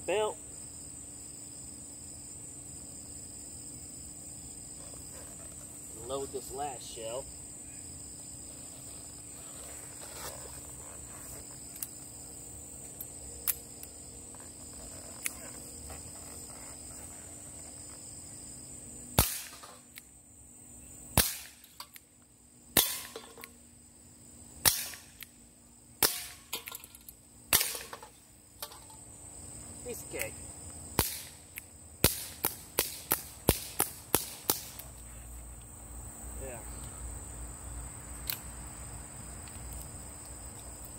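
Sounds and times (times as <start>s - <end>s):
crickets chirping: 0.0s - 40.9s
air pistol pops: 19.2s - 20.1s, 21.2s - 22.0s, 24.6s - 25.3s, 27.5s - 28.1s, 31.0s - 34.9s.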